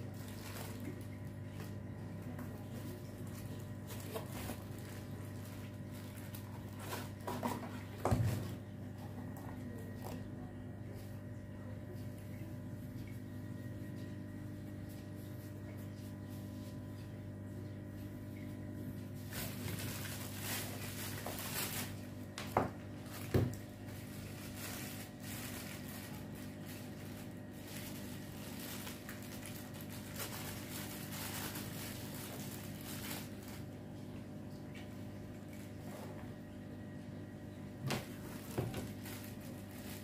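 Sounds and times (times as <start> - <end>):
plastic packaging rustling: 0.0 - 8.6, 19.0 - 33.8, 37.8 - 40.0
steady low hum: 0.0 - 40.0.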